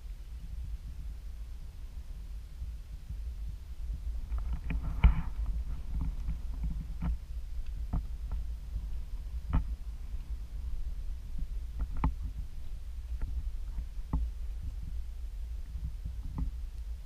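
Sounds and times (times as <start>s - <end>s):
camera handling rumble: 4.2s - 8.5s.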